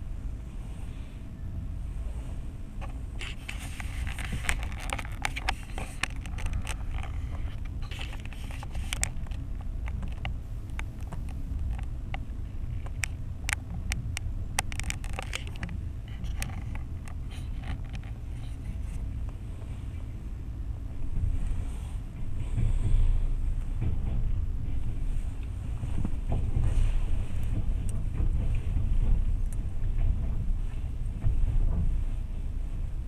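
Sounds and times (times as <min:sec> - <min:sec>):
vehicle rumble: 0:00.0 - 0:33.0
wind on microphone: 0:00.0 - 0:33.0
sharp clicks and crackles: 0:02.8 - 0:19.4.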